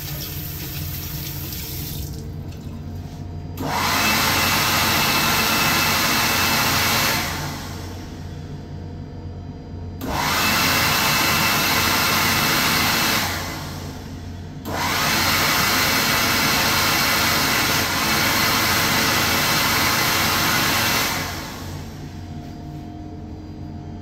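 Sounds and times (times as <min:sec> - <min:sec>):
hand dryer blowing: 0:00.0 - 0:02.3, 0:03.0 - 0:08.2, 0:10.0 - 0:14.1, 0:14.7 - 0:22.3.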